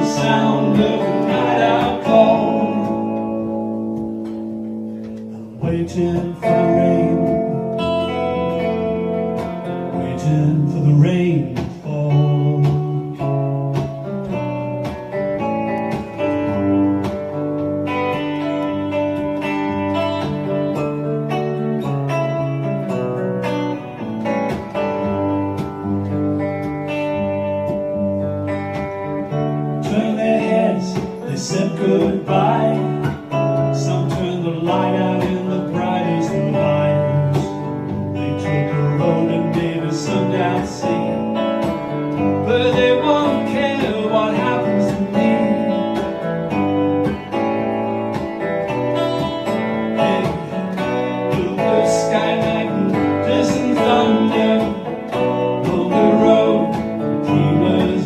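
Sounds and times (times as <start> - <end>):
man singing: 0.0 - 3.6, 5.4 - 8.6, 9.9 - 13.5, 29.6 - 46.2, 49.8 - 58.0
electric guitar: 0.0 - 58.0.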